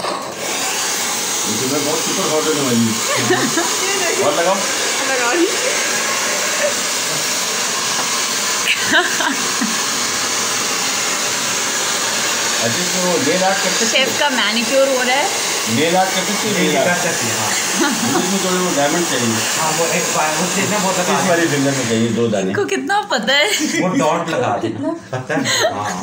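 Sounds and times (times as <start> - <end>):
electric blower rushing: 0.0 - 22.5
people talking: 1.5 - 5.9, 12.6 - 26.0.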